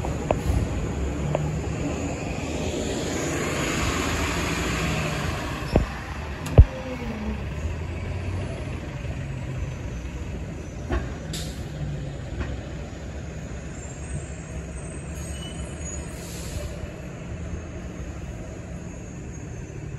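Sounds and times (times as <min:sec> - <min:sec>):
bus engine rumbling: 0:00.0 - 0:19.9.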